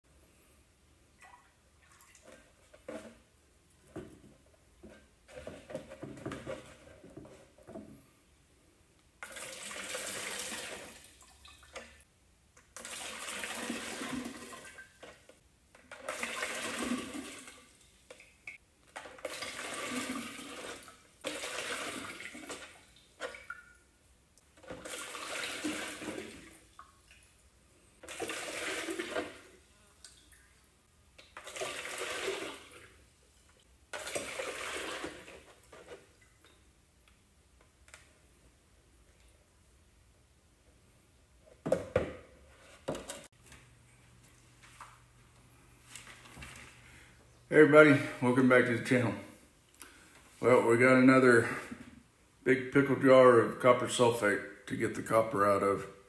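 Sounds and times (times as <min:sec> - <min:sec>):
liquid pouring and splashing: 0:01.2 - 0:03.2, 0:09.2 - 0:12.0, 0:12.6 - 0:23.9, 0:24.5 - 0:33.1, 0:33.9 - 0:36.4.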